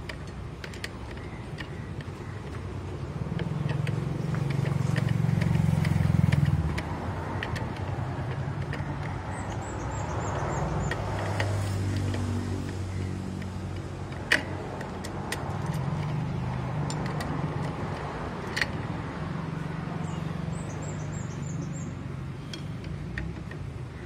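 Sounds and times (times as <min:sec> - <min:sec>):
hand tool metal clicks: 0:00.0 - 0:19.4
vehicle engine passing: 0:03.2 - 0:13.8.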